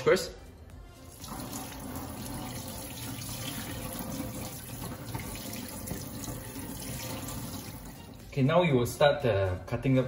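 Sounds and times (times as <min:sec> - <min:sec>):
tap running into metal sink: 0:01.2 - 0:08.2.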